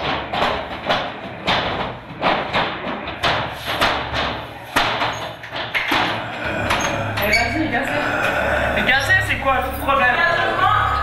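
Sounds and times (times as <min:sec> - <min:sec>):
hands pounding on glass door: 0:00.0 - 0:07.3.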